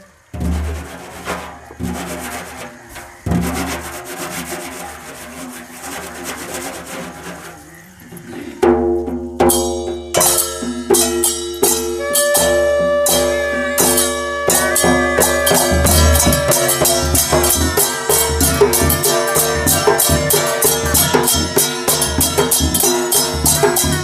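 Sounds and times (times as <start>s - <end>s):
drums beating fast rhythm: 0.3s - 7.5s, 8.4s - 24.0s
piercing wind instrument melody: 11.2s - 24.0s.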